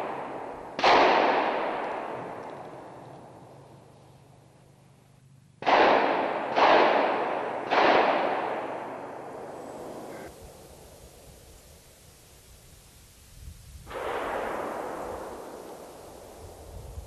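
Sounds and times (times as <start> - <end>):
echoing gunshots: 0.0 - 3.6, 5.6 - 10.3, 13.9 - 16.5.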